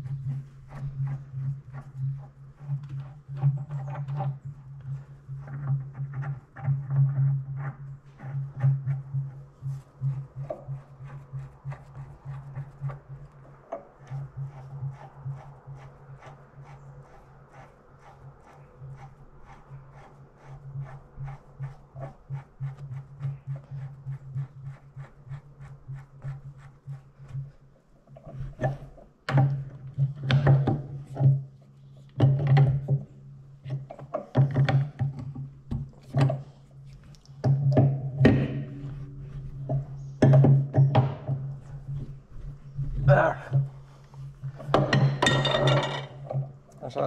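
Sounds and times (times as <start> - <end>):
spanner knocks and clanks: 44.5 - 46.6.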